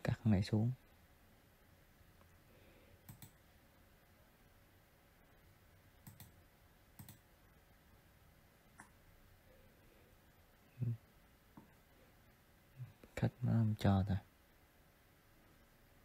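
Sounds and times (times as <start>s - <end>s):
faint room hiss: 0.0s - 16.0s
computer mouse clicking: 3.0s - 3.4s, 6.0s - 6.4s, 7.0s - 7.2s.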